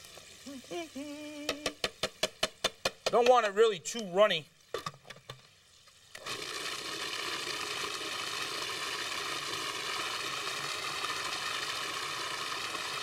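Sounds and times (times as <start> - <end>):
food processor motor whirring: 6.2 - 13.0.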